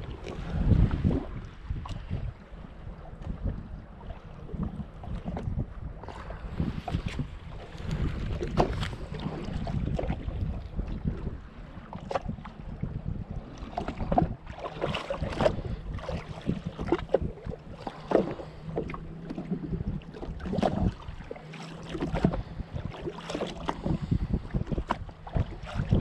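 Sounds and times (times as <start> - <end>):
waves lapping against hull: 0.0 - 26.0
wind rumbling on microphone: 0.0 - 26.0.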